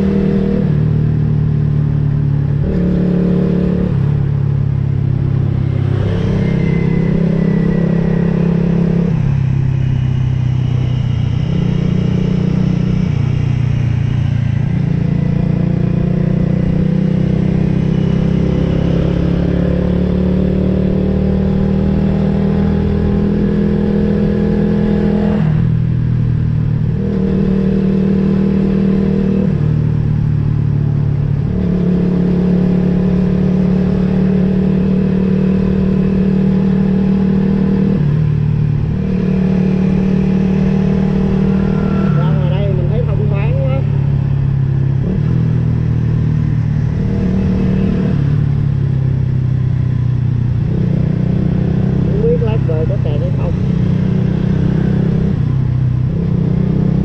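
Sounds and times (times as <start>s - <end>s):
wind and road noise: 0.0s - 57.0s
motorcycle engine running: 25.6s - 57.0s.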